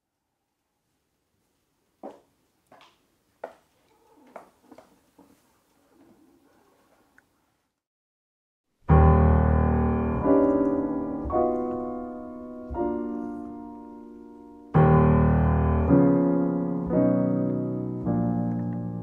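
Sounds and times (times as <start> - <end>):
piano playing slow chords: 8.8 - 19.0.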